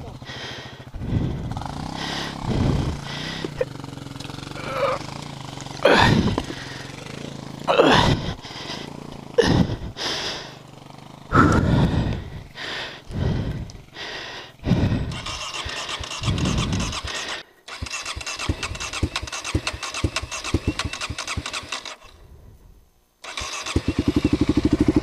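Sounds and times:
person panting heavily: 0.0s - 3.7s, 5.8s - 10.7s, 11.3s - 17.7s, 18.4s - 20.1s.

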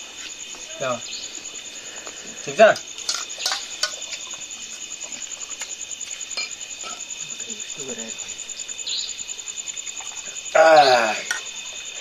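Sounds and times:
crickets chirping: 0.0s - 12.0s
steel dishes clinking: 2.7s - 4.0s, 6.4s - 7.1s.

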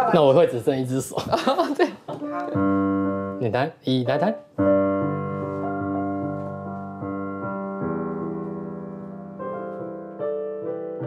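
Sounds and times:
digital piano chords: 2.3s - 11.0s.

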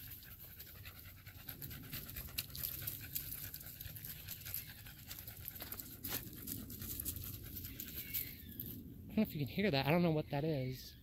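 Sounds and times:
dog panting: 0.0s - 8.0s.

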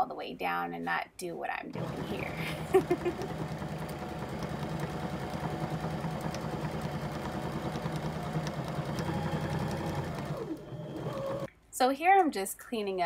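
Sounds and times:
electric sewing machine running: 1.8s - 11.5s.

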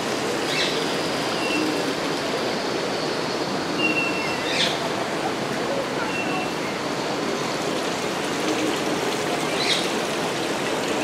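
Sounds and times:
flowing water: 0.0s - 11.0s.

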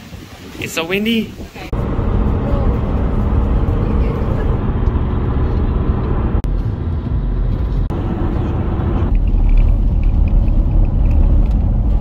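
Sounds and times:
car interior road and engine rumble: 1.7s - 12.0s.

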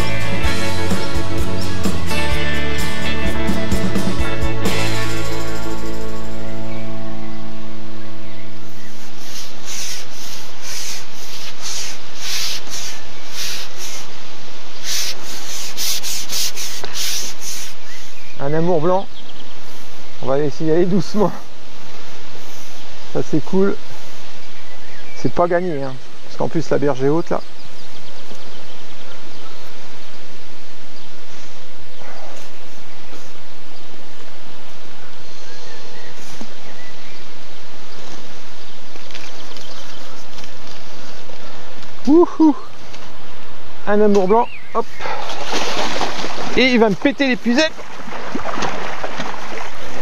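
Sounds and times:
leaves rustling: 3.8s - 50.0s
fishing pole rubbing swishes: 8.7s - 14.1s, 14.8s - 17.8s.

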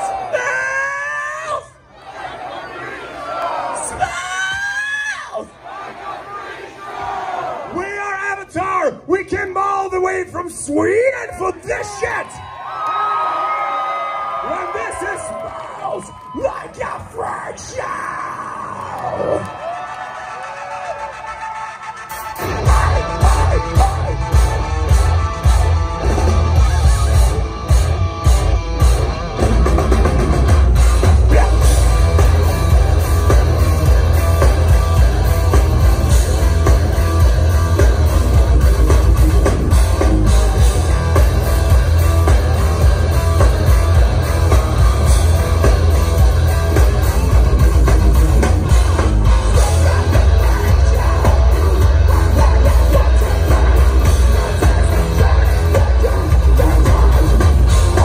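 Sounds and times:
heavy metal band playing live: 22.0s - 58.0s.

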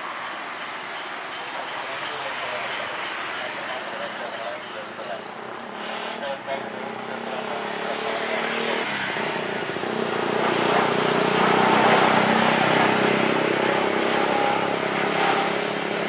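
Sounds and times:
jet engines rushing: 0.0s - 16.0s
low drone: 2.6s - 16.0s.

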